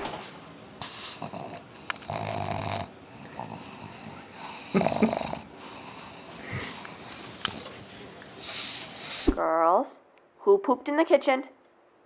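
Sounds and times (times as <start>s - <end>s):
dog nasal breathing: 0.8s - 1.6s.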